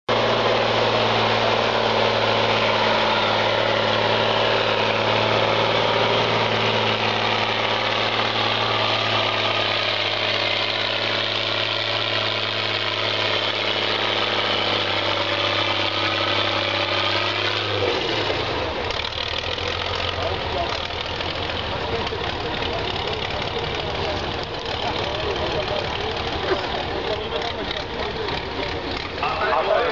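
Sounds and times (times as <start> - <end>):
truck engine revving hard: 0.1 - 29.9.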